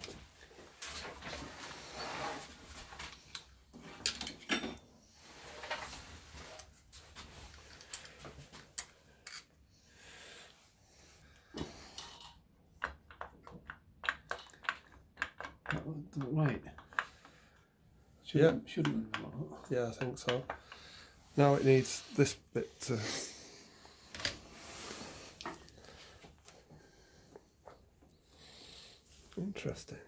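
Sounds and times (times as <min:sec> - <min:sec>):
metallic clicks and scrapes of tools: 0:07.5 - 0:09.6.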